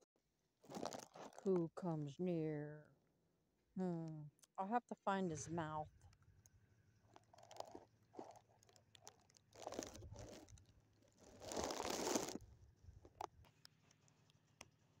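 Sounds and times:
footsteps in dry leaves: 11.2s - 12.4s.

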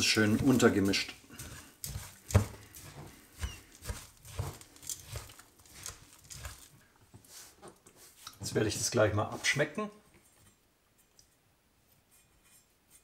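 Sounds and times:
mixing thick mass in a bowl: 0.0s - 9.7s.

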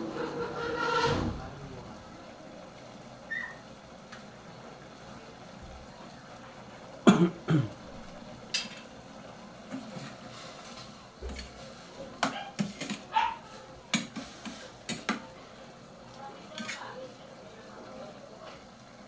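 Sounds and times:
metal ladle scraping a pot: 0.0s - 1.5s.

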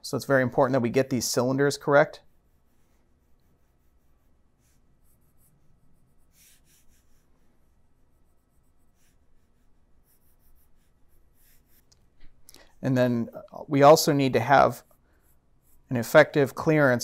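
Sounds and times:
pen scratching on paper: 2.2s - 12.0s, 14.8s - 16.2s.

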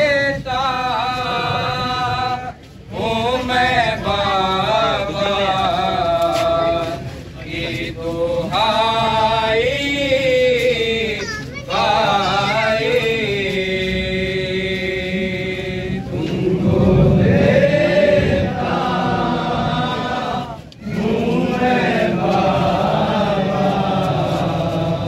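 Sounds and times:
men chanting a lament: 0.0s - 25.0s
low rumble: 15.4s - 19.9s.

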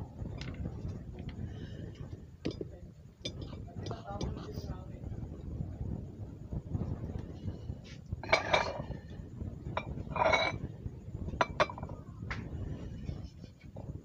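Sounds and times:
stone scraping on ceramic plate: 8.2s - 9.0s, 9.8s - 10.6s.

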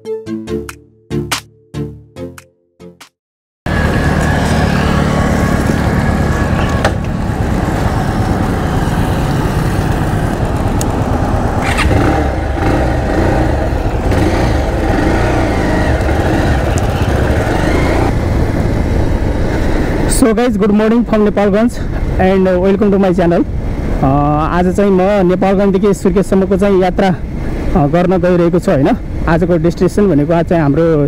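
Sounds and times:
street traffic noise: 3.7s - 31.0s
motorcycle engine idling: 3.8s - 18.7s.

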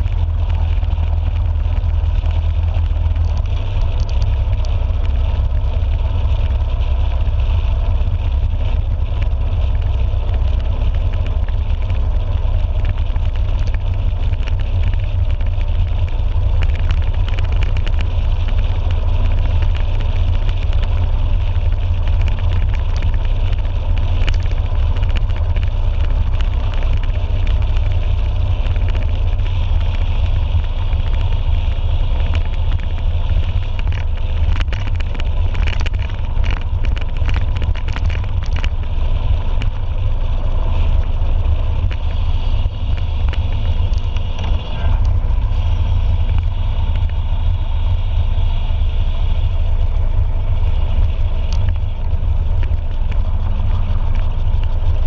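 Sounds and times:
motorcycle engine running: 0.0s - 55.0s
wind rumble on microphone: 0.0s - 55.0s.

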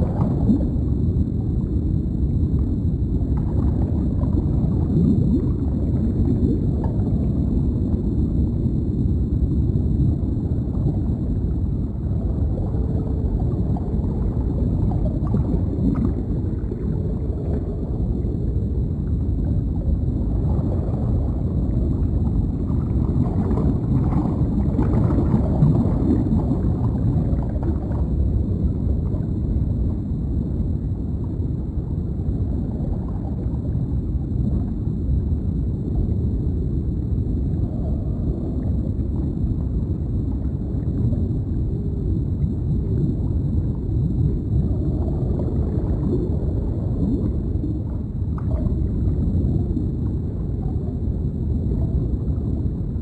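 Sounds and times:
gurgling bubbles: 0.0s - 53.0s
muffled underwater rumble: 0.0s - 53.0s.

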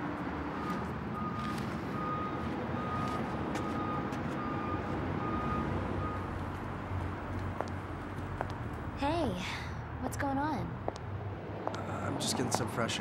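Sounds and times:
vehicle reversing alarm beeping: 0.5s - 7.0s.

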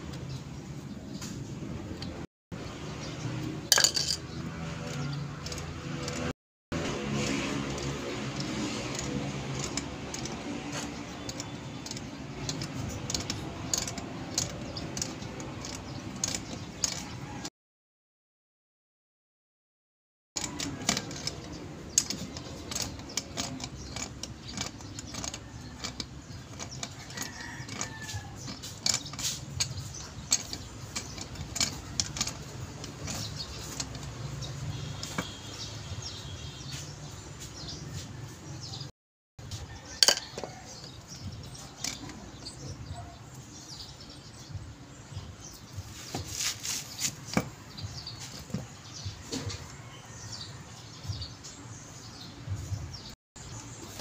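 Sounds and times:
birds chirping: 0.0s - 17.5s, 20.4s - 54.0s
steel tools clinking on metal: 3.6s - 6.3s, 7.6s - 17.5s, 20.4s - 36.3s, 39.6s - 43.9s.

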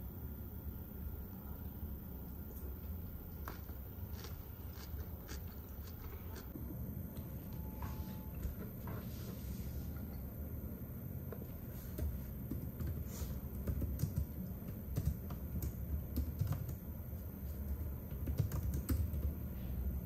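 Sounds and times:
keyboard keys clicking: 13.6s - 16.8s, 18.1s - 19.4s.

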